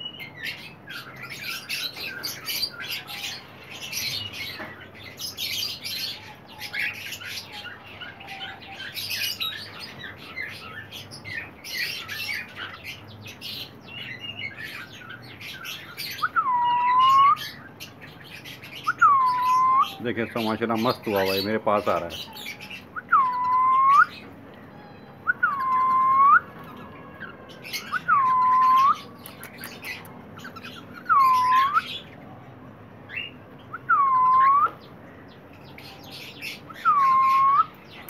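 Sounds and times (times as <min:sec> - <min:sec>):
cockatiels chirping: 0:00.0 - 0:24.2
loud drawn-out whistled call: 0:31.0 - 0:32.0, 0:36.7 - 0:37.8.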